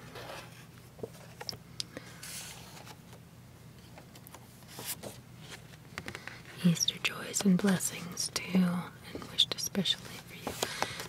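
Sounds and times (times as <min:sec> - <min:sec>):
paper card rustling and scraping: 0:00.0 - 0:03.2, 0:03.8 - 0:06.6
low steady hum: 0:00.0 - 0:11.0.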